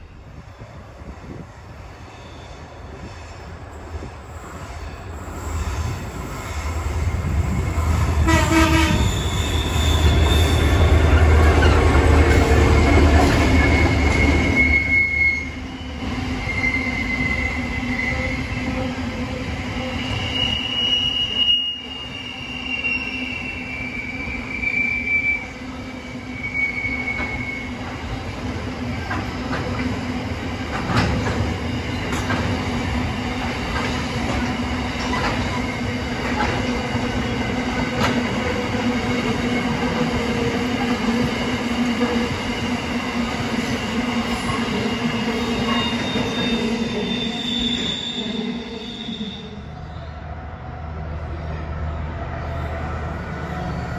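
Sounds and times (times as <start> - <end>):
train wheels rolling: 0.0 - 21.2, 26.1 - 48.0
wheel flange squeals: 8.9 - 11.8, 12.7 - 18.6, 19.9 - 25.6, 26.2 - 27.9, 44.7 - 49.5.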